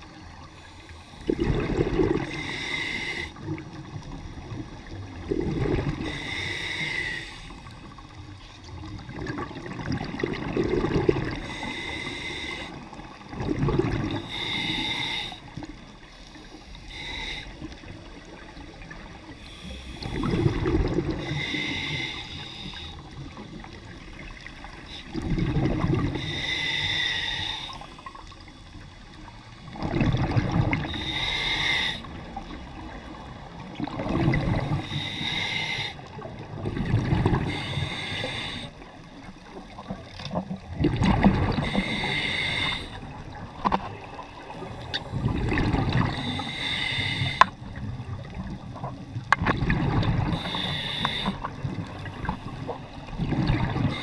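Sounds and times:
exhaled bubbles gushing underwater: 0.0s - 2.7s, 3.4s - 6.4s, 7.7s - 11.7s, 12.6s - 14.4s, 17.6s - 22.1s, 23.0s - 26.5s, 29.1s - 31.1s, 32.0s - 35.1s, 36.0s - 54.0s
regulator air hiss: 2.2s - 3.4s, 6.0s - 7.7s, 11.4s - 12.9s, 14.2s - 17.9s, 19.3s - 20.3s, 21.2s - 23.6s, 26.2s - 29.2s, 30.9s - 32.1s, 34.8s - 36.2s, 37.5s - 38.8s, 41.6s - 43.0s, 46.1s - 47.8s, 50.3s - 51.4s.

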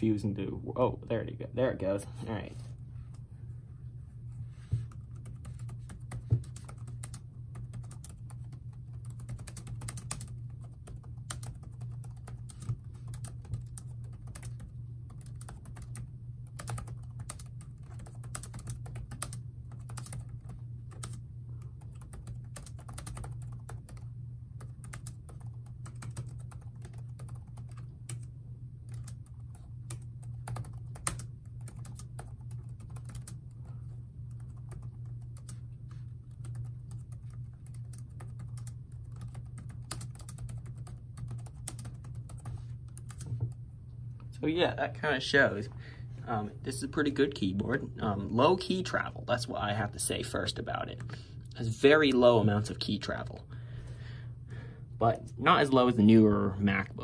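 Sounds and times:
fast typing on laptop keyboard: 4.9s - 35.6s, 36.3s - 43.5s.

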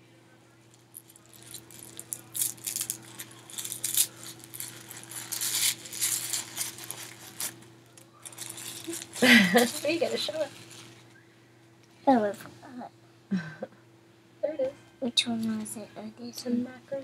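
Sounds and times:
faint low hum: 0.0s - 17.0s
plastic wrapping crinkling: 0.7s - 11.2s.

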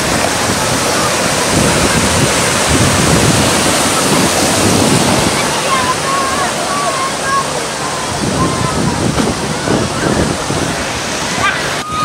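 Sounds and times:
ocean surf washing: 0.0s - 12.0s
wind buffeting microphone: 0.0s - 12.0s.

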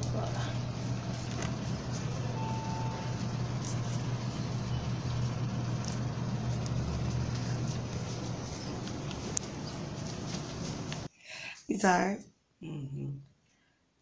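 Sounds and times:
low mechanical hum: 0.0s - 11.1s
thin tone: 2.0s - 5.8s.

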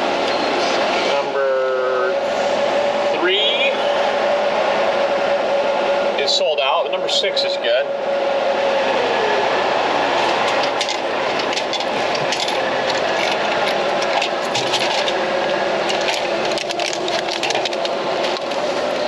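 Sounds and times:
vending machine humming: 0.0s - 19.0s.

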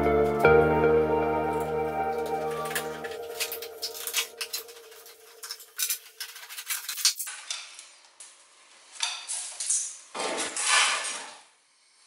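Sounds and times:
metal parts clinking: 2.7s - 7.4s.

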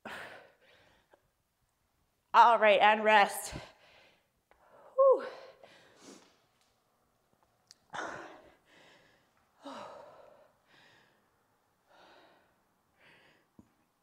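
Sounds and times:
woman breathing hard: 0.0s - 1.2s, 3.7s - 6.4s, 7.9s - 13.8s.

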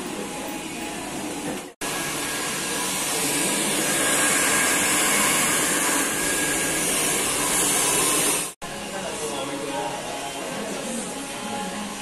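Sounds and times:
hair dryer blowing: 1.8s - 8.6s.

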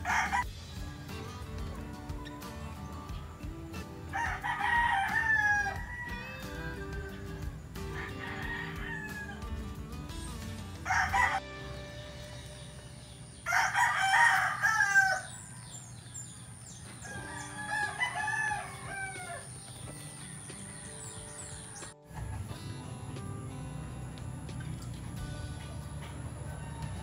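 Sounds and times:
rooster crowing: 0.0s - 2.4s, 4.1s - 9.6s, 10.8s - 11.5s, 12.4s - 16.0s, 16.9s - 22.6s, 25.6s - 27.0s.

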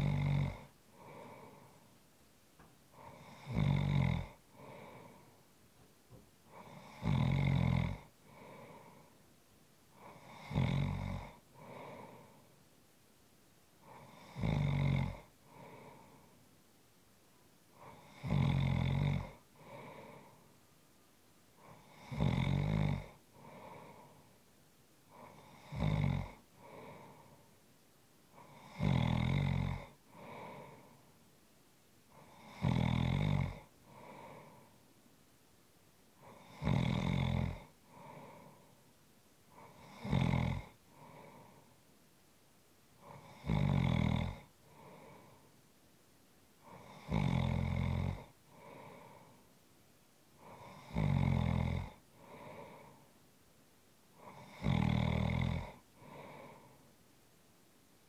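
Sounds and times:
person snoring: 0.0s - 1.8s, 2.9s - 5.3s, 6.5s - 9.1s, 10.0s - 12.5s, 13.8s - 16.4s, 17.8s - 20.4s, 21.6s - 24.3s, 25.1s - 27.4s, 28.4s - 31.0s, 32.1s - 34.8s, 36.2s - 38.8s, 39.5s - 41.7s, 43.0s - 45.5s, 46.6s - 49.4s, 50.4s - 53.0s, 54.2s - 56.9s.

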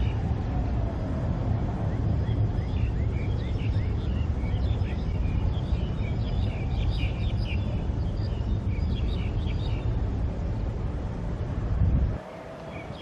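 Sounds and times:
distant jet engines rumbling: 0.0s - 13.0s
birds chirping: 1.9s - 10.1s, 12.2s - 13.0s.

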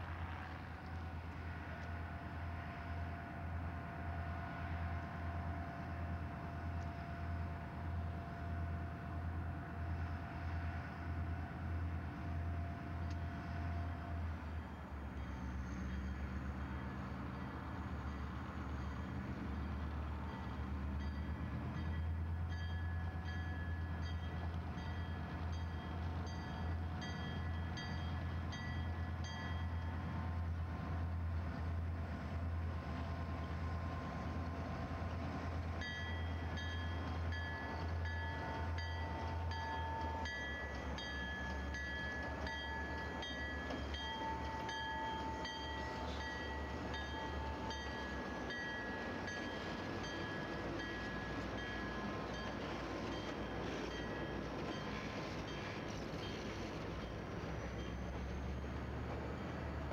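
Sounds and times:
diesel locomotives droning: 0.0s - 59.9s
locomotive bell ringing: 11.8s - 31.2s, 32.5s - 59.8s.

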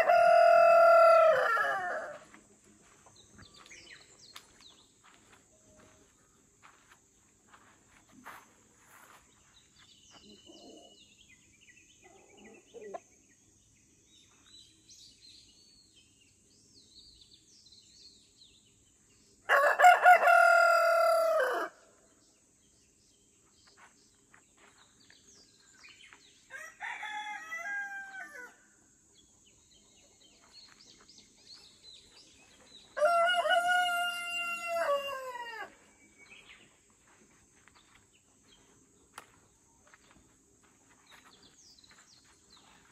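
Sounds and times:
rooster crowing: 0.0s - 2.3s, 19.5s - 21.8s, 26.5s - 28.6s, 33.0s - 35.8s
small birds chirping: 2.1s - 19.5s, 21.8s - 26.6s, 28.4s - 42.9s.

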